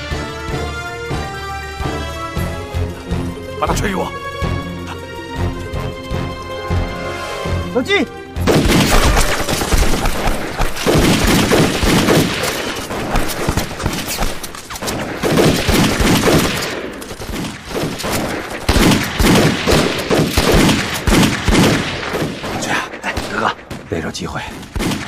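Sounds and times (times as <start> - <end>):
pistol shots: 8.4 - 23.9, 24.6 - 25.0
continuous gunfire: 8.4 - 25.0.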